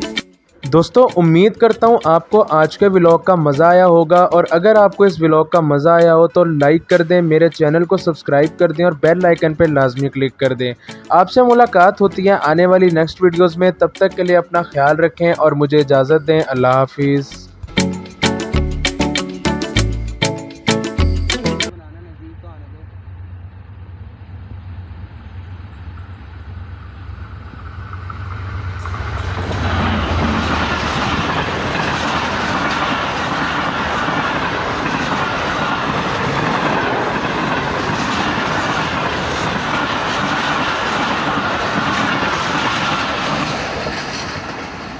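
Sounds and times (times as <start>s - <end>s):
diesel locomotive engine drone: 21.7s - 44.9s
train wheels clattering on rails: 23.2s - 44.9s.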